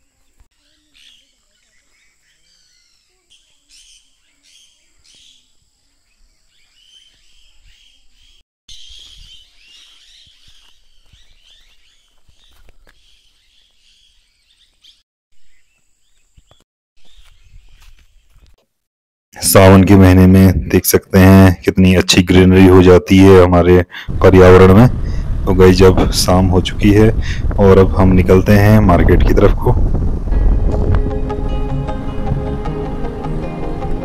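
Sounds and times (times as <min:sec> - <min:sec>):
low rumble on microphone: 0:24.1 - 0:32.5.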